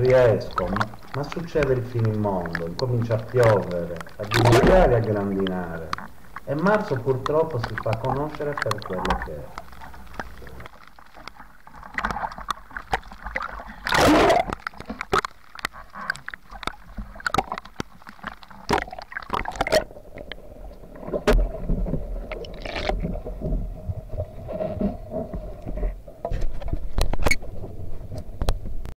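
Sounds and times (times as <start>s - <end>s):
rain and hail ticking: 0.0s - 20.4s
rough sea splashing: 0.0s - 25.0s.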